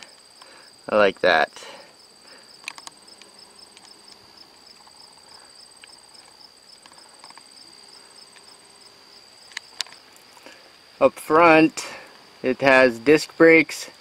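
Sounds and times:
faint ticks: 0.0s - 1.3s, 2.3s - 7.5s
crickets chirping: 0.0s - 14.0s.

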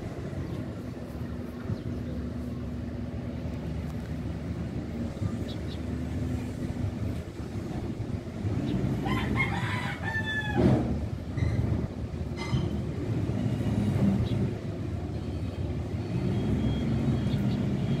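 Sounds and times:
steady low rumble: 0.0s - 10.1s
rooster-like crowing call: 9.0s - 11.0s.

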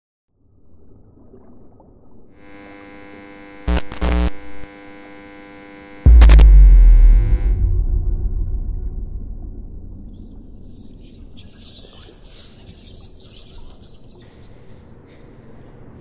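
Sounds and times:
electrical mains buzz: 2.4s - 10.8s
sharp crackles: 3.6s - 4.5s
loud deep boom: 6.1s - 11.6s.

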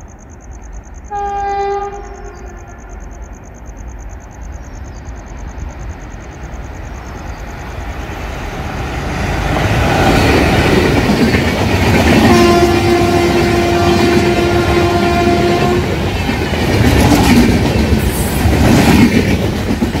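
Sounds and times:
train wheels rumbling on rails: 0.0s - 20.0s
train horn blast: 1.1s - 2.9s, 12.2s - 16.0s.

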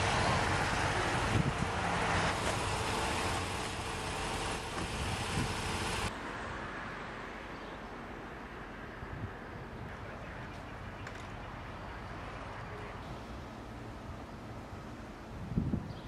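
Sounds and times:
passing vehicle: 0.0s - 11.1s
outdoor background noise: 0.0s - 16.0s.

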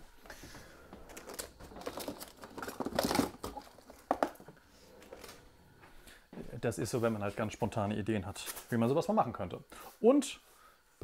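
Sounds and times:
rustling and crinkling: 0.2s - 7.5s.

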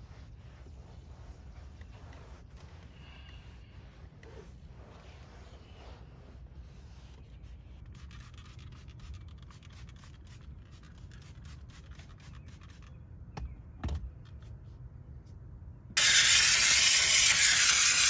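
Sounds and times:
towel rubbing plastic dashboard: 0.0s - 7.9s
spray bottle squirts: 16.0s - 18.0s.

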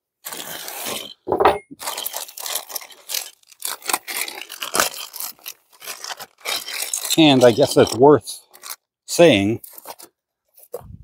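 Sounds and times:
wrench scraping strokes: 6.4s - 8.8s.

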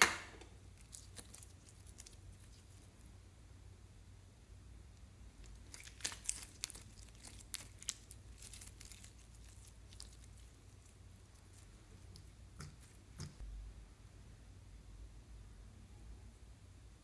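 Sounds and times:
slime crackling and popping: 0.0s - 2.9s, 5.4s - 13.4s.

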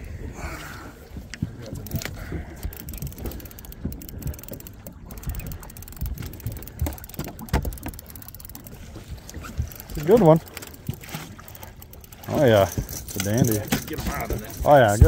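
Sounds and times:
knocks and thumps on boat: 1.1s - 8.2s, 12.2s - 15.0s
fishing reels clicking: 1.3s - 15.0s.

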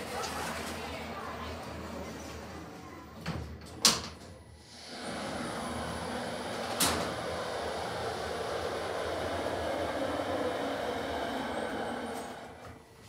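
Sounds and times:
lift running noise: 4.4s - 13.0s
lift doors clunking shut: 4.8s - 7.9s.

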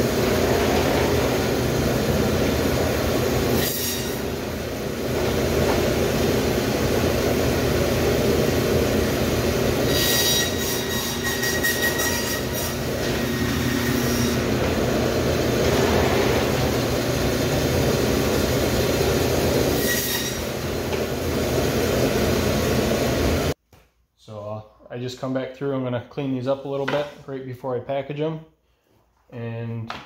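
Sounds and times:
band saw cutting bone: 3.4s - 4.3s, 9.8s - 14.6s, 19.6s - 20.6s.

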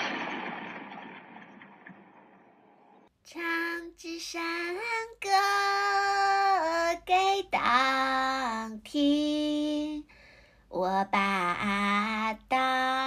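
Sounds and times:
high voice singing slow melody: 3.3s - 10.1s, 10.7s - 13.0s.

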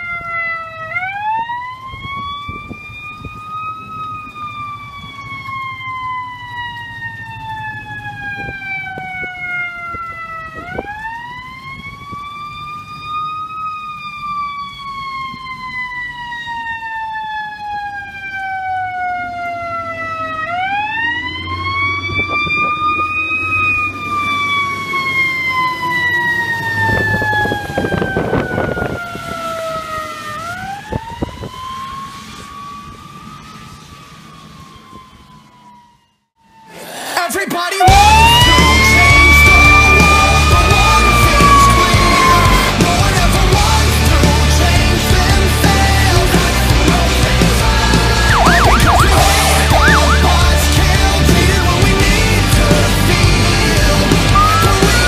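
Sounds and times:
fire engine siren wailing: 0.0s - 55.0s
tyres on wet road: 0.0s - 55.0s
truck engine: 19.7s - 35.7s, 37.0s - 55.0s.

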